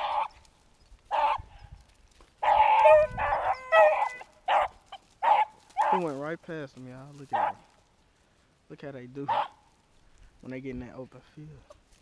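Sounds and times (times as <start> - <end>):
hounds baying: 0.0 - 1.8, 2.4 - 6.2, 7.3 - 7.8, 9.2 - 9.8.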